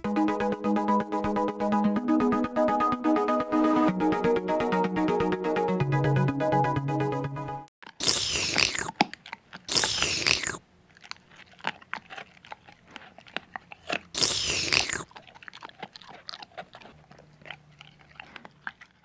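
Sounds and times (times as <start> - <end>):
cartoon crunchy chewing: 7.8 - 19.0
clicky chewing and smacking: 7.8 - 19.0.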